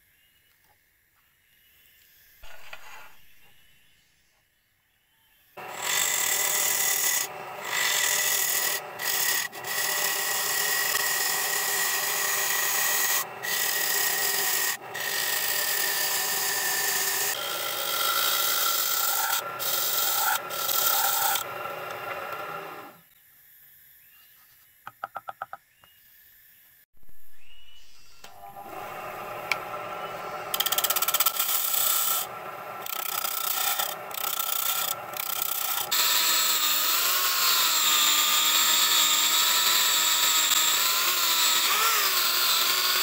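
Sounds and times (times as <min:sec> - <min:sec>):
gouge scraping spinning wood: 0:05.6 - 0:23.0, 0:28.7 - 0:43.0.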